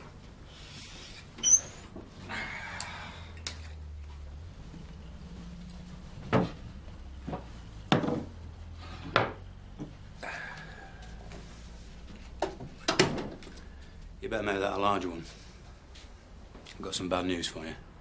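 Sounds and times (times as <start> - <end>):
low steady hum: 0.0 - 18.0
sharp knocks and clunks: 6.2 - 6.6, 7.2 - 8.4, 9.0 - 10.0, 12.4 - 13.5.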